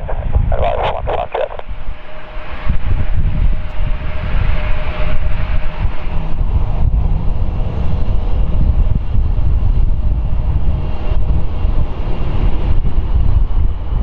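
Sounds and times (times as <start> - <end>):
faint steady whine: 0.0 - 6.9
distant jet engine rumble: 0.0 - 14.0
wind buffeting microphone: 0.0 - 14.0.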